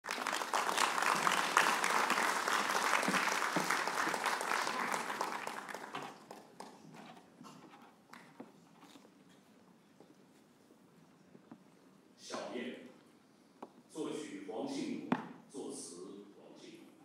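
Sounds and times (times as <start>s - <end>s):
audience applause: 0.0s - 7.1s.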